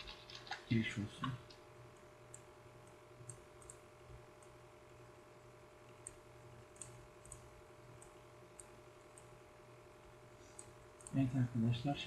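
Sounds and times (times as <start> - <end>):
low steady hum: 0.0 - 12.0
computer mouse clicks: 1.2 - 3.8, 5.8 - 9.3, 10.5 - 11.2.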